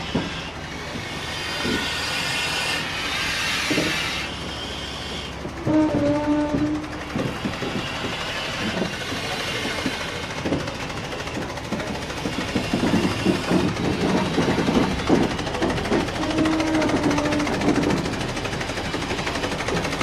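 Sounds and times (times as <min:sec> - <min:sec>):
steam exhaust beats: 0:00.0 - 0:20.0
wheels clanking: 0:00.0 - 0:20.0
locomotive horn: 0:05.6 - 0:07.0, 0:15.9 - 0:18.1.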